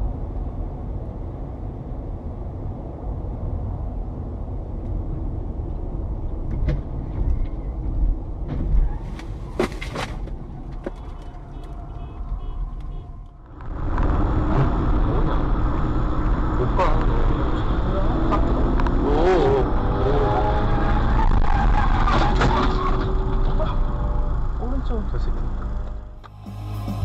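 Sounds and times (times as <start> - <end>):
car road and engine rumble: 0.0 - 27.0
loud rumble: 10.3 - 21.6.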